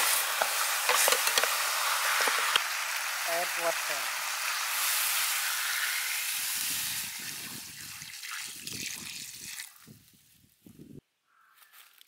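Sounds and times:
water pouring into a wok: 0.0s - 9.8s.

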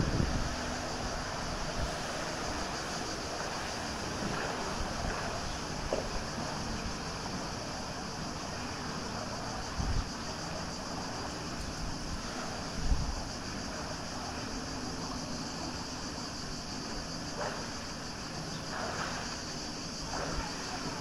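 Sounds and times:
wind noise on microphone: 0.0s - 3.2s, 9.5s - 10.5s, 11.1s - 14.2s
swimming splashes: 0.0s - 21.0s.

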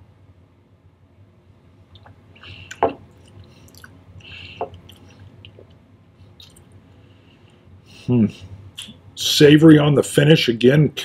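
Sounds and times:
man smacking lips: 1.9s - 6.8s, 8.8s - 9.0s.

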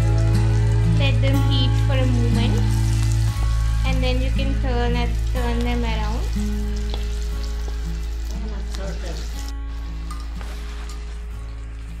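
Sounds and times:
background music: 0.0s - 12.0s
onions sizzling in hot oil: 0.0s - 12.0s
spatula stirring: 6.5s - 12.0s.

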